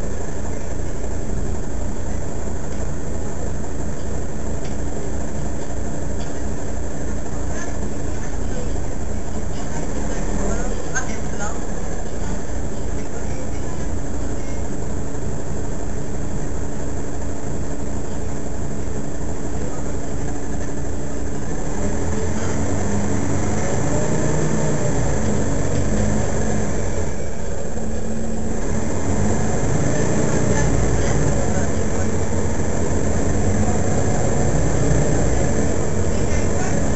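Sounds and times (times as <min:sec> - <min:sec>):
bus engine idling: 0:00.0 - 0:36.9.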